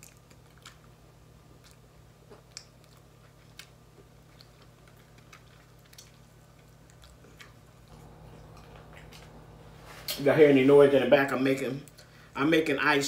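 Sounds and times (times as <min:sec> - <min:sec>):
eating noises and mouth smacks: 0:00.0 - 0:07.9
ice machine humming: 0:07.9 - 0:11.4.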